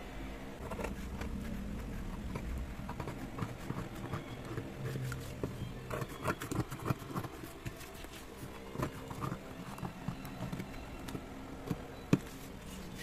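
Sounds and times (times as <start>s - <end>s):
scissors cutting cardboard: 0.6s - 10.7s.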